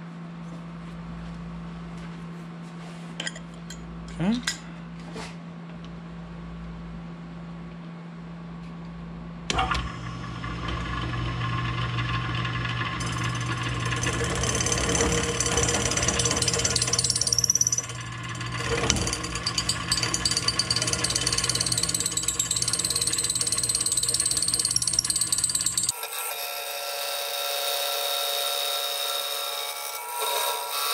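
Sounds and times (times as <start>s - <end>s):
milling machine hum: 9.5s - 25.9s
cutter ringing in aluminum: 13.0s - 18.0s, 18.9s - 26.5s.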